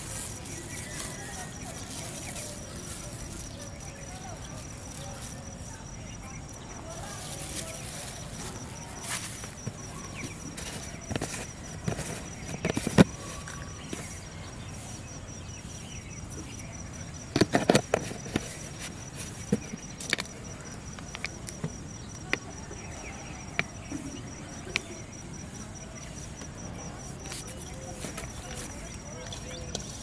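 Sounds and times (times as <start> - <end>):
high insect trill: 0.0 - 30.0
plastic jar clicks and knocks: 9.6 - 14.1, 17.3 - 18.6.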